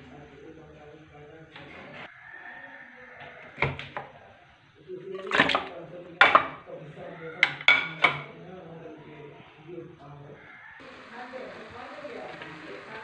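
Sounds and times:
crockery and pan clattering: 5.2 - 6.7, 7.4 - 8.4.

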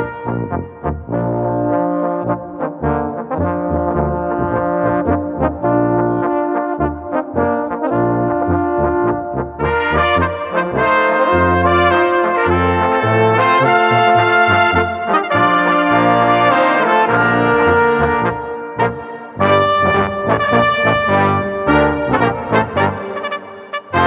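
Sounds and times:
brass band playing a polka: 0.0 - 24.0.

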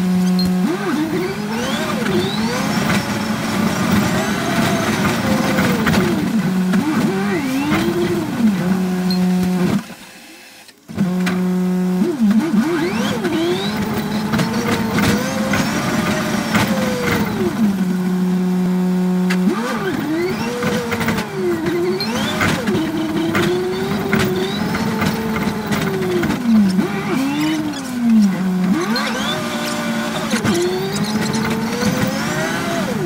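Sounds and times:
bus engine revving: 0.0 - 9.9, 10.9 - 33.0
clicks and rattles in cab: 19.2 - 33.0.

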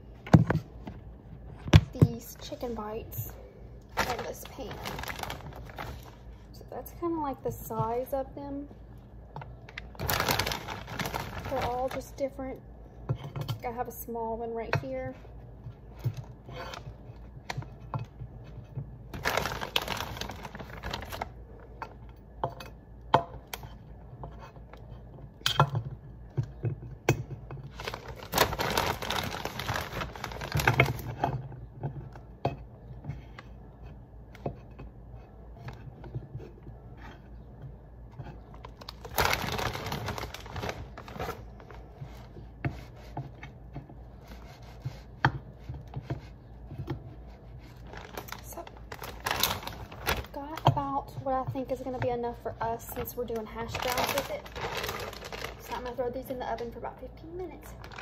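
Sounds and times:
plastic bag crinkling: 3.9 - 6.5, 9.9 - 12.2, 19.1 - 21.4, 27.7 - 31.2, 38.6 - 42.3, 47.8 - 50.7, 53.0 - 56.1, 57.6 - 58.0.

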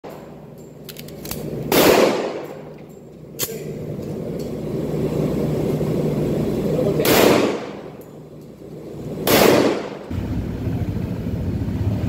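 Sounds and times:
pistol shots echoing indoors: 1.7 - 2.7, 7.0 - 8.0, 9.2 - 10.1.

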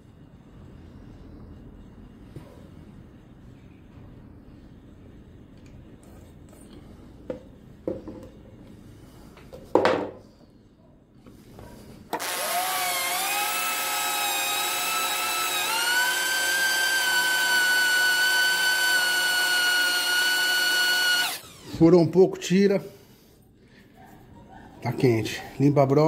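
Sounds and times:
electric drill whining: 12.2 - 21.8.

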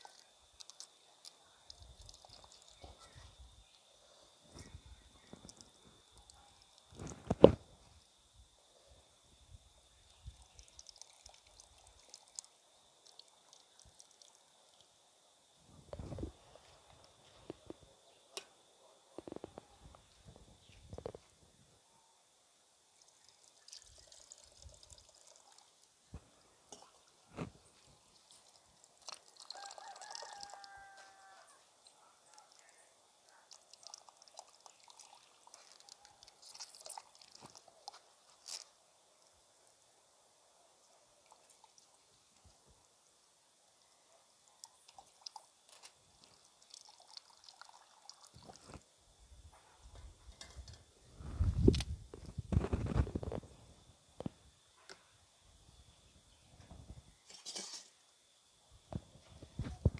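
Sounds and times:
milk trickling and dripping: 0.0 - 8.2, 9.2 - 18.5, 22.7 - 49.1
liquid pouring through strainer: 1.7 - 2.8, 10.1 - 14.8, 23.0 - 25.9, 26.7 - 31.4, 33.5 - 38.0, 44.8 - 48.8
rooster crowing: 29.5 - 31.7.

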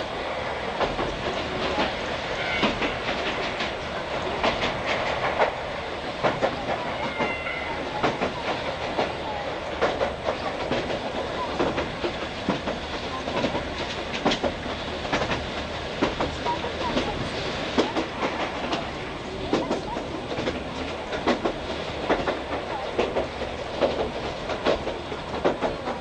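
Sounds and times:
train coach running rumble: 0.0 - 26.0
wheels clicking over rail joints: 6.2 - 26.0.

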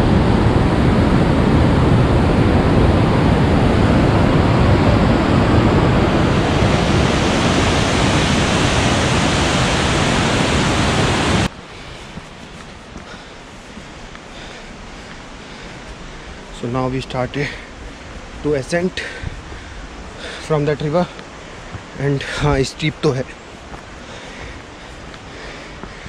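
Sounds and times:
river rushing over boulders: 0.0 - 26.0.

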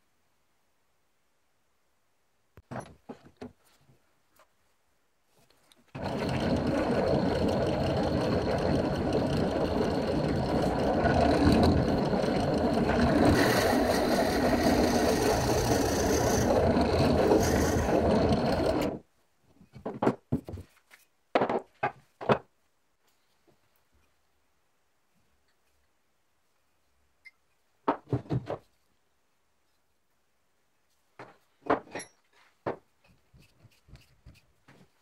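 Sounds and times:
drill press drilling wood: 5.9 - 19.0.

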